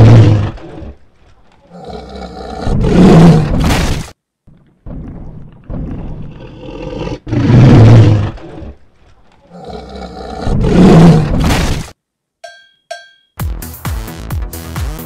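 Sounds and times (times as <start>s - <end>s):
dinosaur roaring: 0.0s - 1.0s, 1.6s - 3.7s, 5.7s - 8.8s, 9.4s - 11.5s
low growling: 0.0s - 1.0s, 1.6s - 3.6s, 4.9s - 11.5s.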